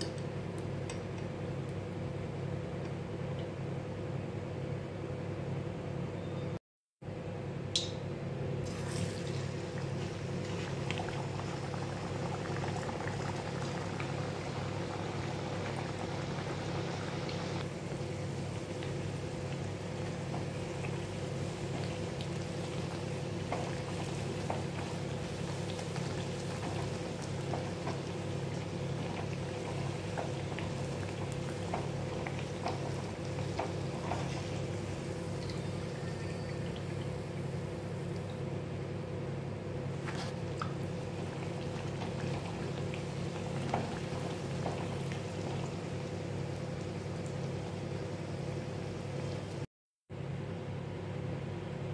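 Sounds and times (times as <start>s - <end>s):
deep-frying sizzle and crackle: 8.6s - 49.7s.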